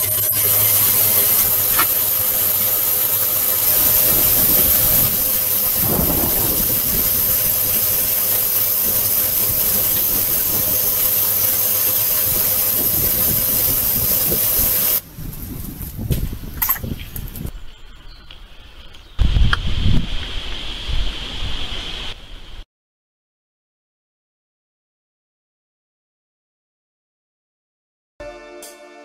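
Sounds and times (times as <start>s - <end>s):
loud steady hiss: 0.0s - 17.5s, 19.2s - 22.6s.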